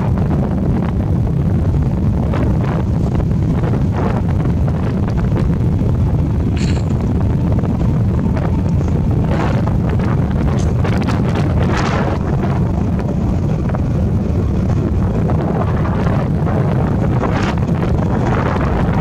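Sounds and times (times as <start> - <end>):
motorbike engine running: 0.0 - 19.0
wind buffeting microphone: 0.0 - 19.0.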